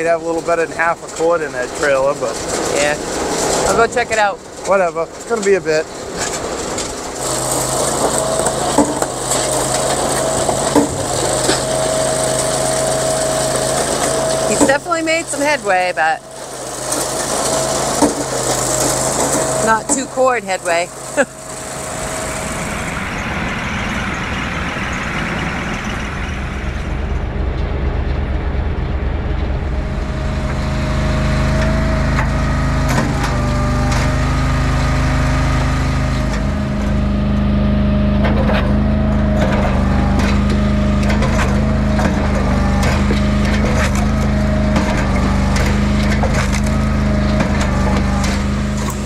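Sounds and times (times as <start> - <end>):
log splitter engine running: 0.0 - 49.0
wood cracking and splitting: 0.8 - 23.7, 29.9 - 49.0.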